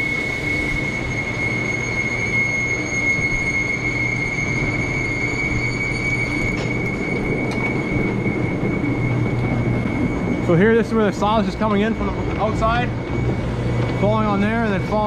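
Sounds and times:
feed conveyor rumble: 0:00.0 - 0:15.0
high-pitched squeal: 0:00.0 - 0:15.0.

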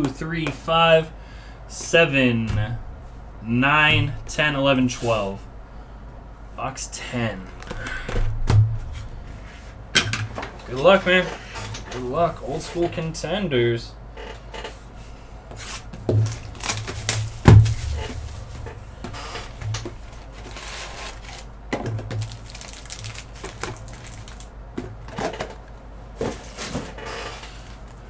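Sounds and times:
box thump on table: 0:16.1 - 0:18.7
card packs clicking and rustling: 0:16.1 - 0:28.0.

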